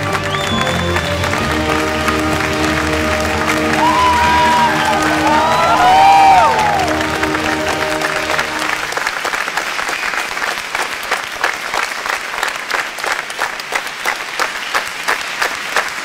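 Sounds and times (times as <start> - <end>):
held music notes: 0.0 - 9.0
crowd applauding: 0.0 - 16.0.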